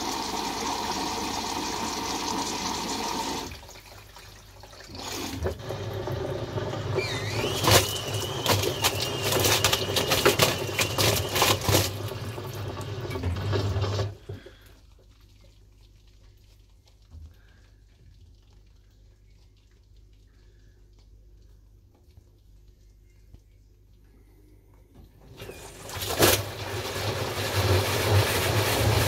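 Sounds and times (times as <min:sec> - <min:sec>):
washing machine drum sloshing: 0:00.0 - 0:15.8, 0:25.0 - 0:29.0.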